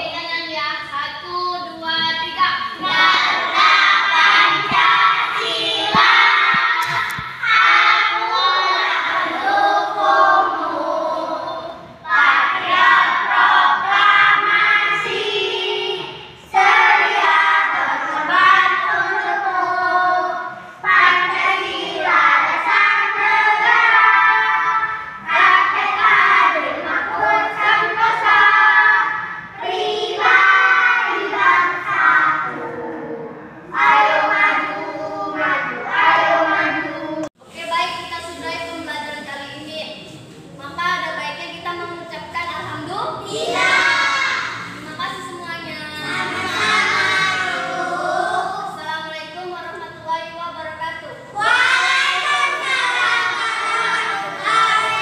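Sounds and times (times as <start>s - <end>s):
children singing in unison: 2.6s - 37.3s, 43.3s - 44.9s, 46.0s - 48.8s, 51.3s - 55.0s.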